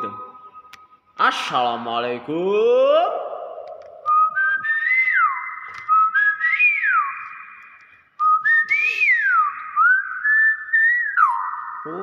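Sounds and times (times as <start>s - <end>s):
myna whistling: 4.1s - 12.0s.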